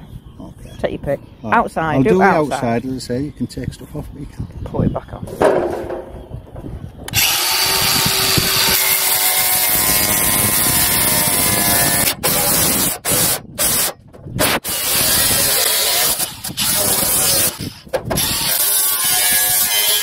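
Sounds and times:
angle grinder cutting sheet metal: 0:07.1 - 0:20.0.

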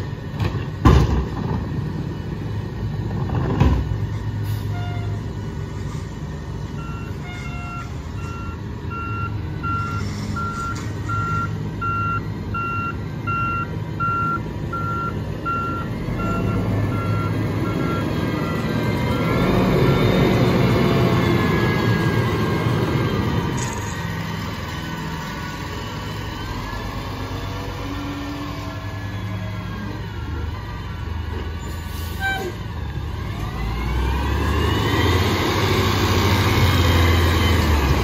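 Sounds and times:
truck engine running: 0:00.0 - 0:38.0
thump: 0:00.4 - 0:01.6
truck backup alarm beeping: 0:06.7 - 0:23.7.

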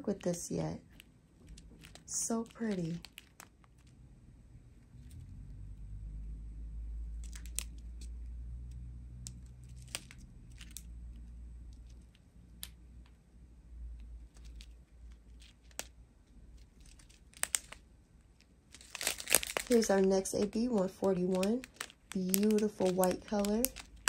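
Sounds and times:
low steady hum: 0:00.0 - 0:24.0
plastic bags crinkling: 0:00.1 - 0:03.9, 0:07.2 - 0:08.0, 0:09.6 - 0:10.9, 0:16.5 - 0:24.0.

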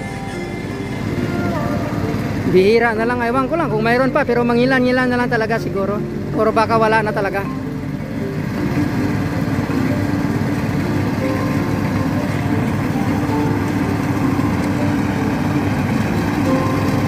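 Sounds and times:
harvester engine droning: 0:00.0 - 0:17.0.

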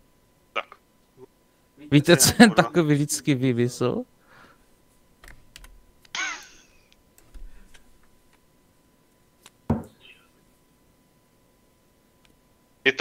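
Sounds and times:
typing on computer keyboard: 0:05.2 - 0:05.8.

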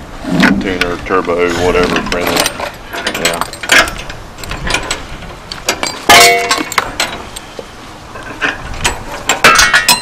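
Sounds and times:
loud metallic clang: 0:05.8 - 0:07.1.

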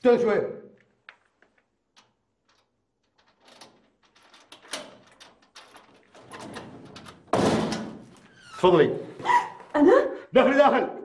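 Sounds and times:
metal lock clicking and rattling: 0:01.9 - 0:08.2.

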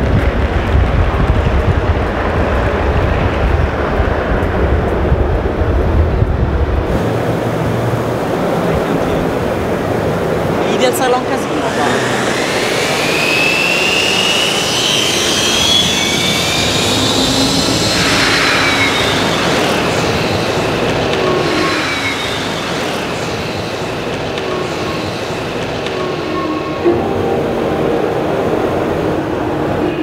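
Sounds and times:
rc helicopter motor whining: 0:11.4 - 0:25.9.

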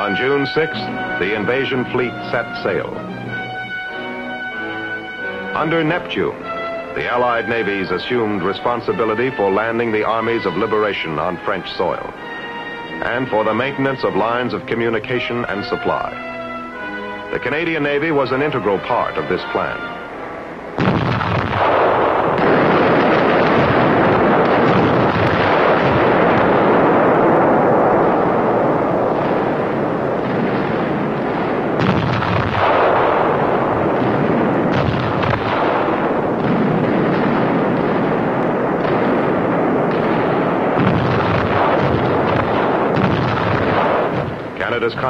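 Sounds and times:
heavy naval gunfire: 0:00.0 - 0:45.0
shell explosions: 0:00.0 - 0:45.0.

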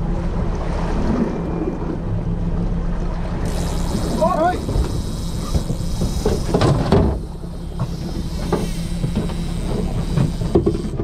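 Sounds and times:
boat engine humming: 0:00.0 - 0:11.0
gear knocking and clattering: 0:03.5 - 0:11.0.

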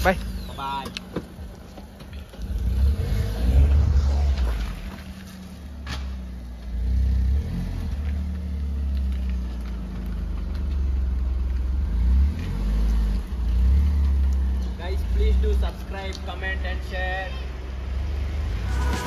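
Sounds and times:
small car engine revving: 0:02.4 - 0:09.2.

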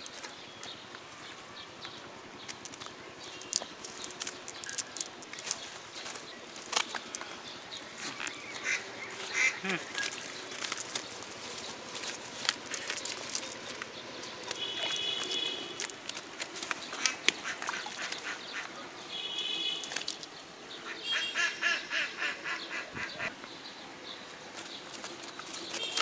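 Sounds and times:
fish flapping in a net: 0:02.6 - 0:08.8, 0:09.6 - 0:18.4, 0:19.6 - 0:20.4, 0:24.5 - 0:26.0
duck calls: 0:08.6 - 0:10.0.

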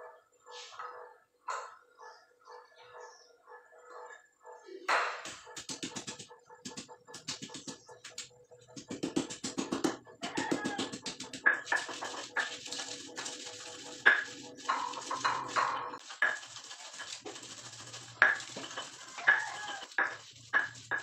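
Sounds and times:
stone pestle pounding and grinding: 0:05.2 - 0:21.0.

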